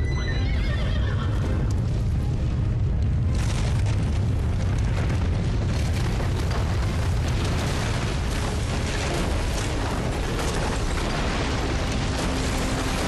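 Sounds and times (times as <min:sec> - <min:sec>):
deep earthquake rumbling: 0:01.3 - 0:13.0
stone crumbling and crashing: 0:03.0 - 0:13.0.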